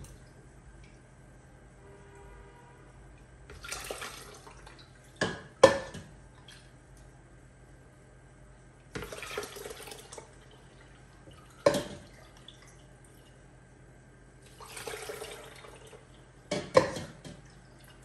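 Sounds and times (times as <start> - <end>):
liquid pouring through strainer: 3.5 - 5.0, 9.0 - 13.4, 14.4 - 16.1.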